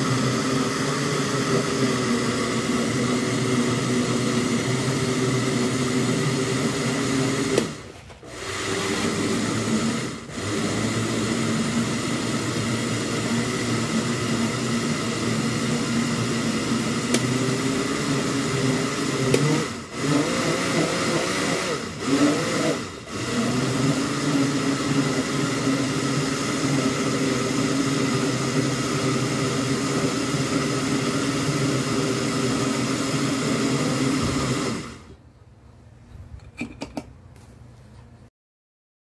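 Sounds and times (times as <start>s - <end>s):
blender motor running: 0.0s - 35.2s.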